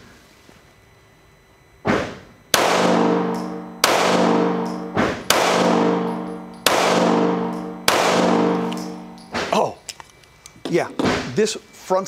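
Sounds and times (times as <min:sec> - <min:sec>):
pistol shots indoors: 0:02.5 - 0:09.5
ringing tone: 0:02.5 - 0:12.0.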